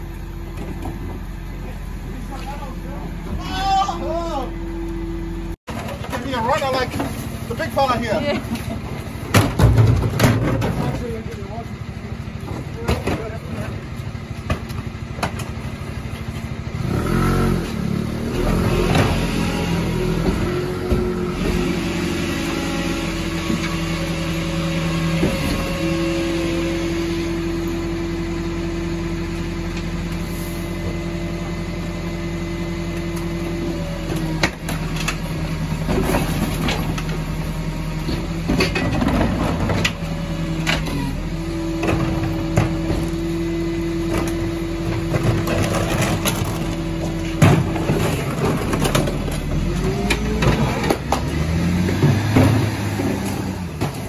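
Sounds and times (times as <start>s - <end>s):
truck engine hum: 0.0s - 54.0s
bins banging and rubbish clattering: 5.7s - 16.5s, 18.2s - 26.2s, 33.0s - 54.0s.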